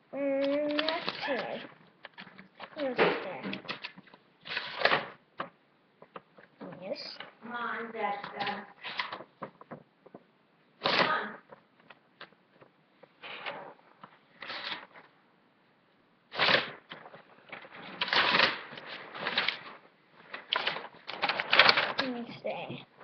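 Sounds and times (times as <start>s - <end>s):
paper rustling: 0.5s - 5.2s, 8.1s - 10.2s, 10.8s - 15.2s, 16.3s - 22.3s.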